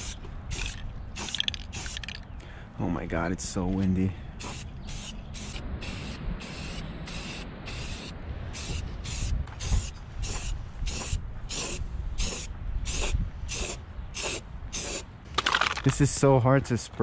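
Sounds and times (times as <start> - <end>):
aerosol can spraying: 0.0 - 2.1, 4.4 - 15.0
wind rumble on microphone: 4.4 - 17.0.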